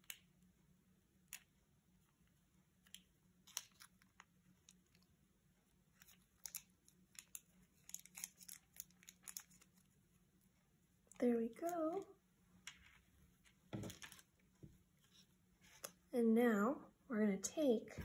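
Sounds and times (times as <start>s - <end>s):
plastic packet crinkling: 6.4s - 9.8s.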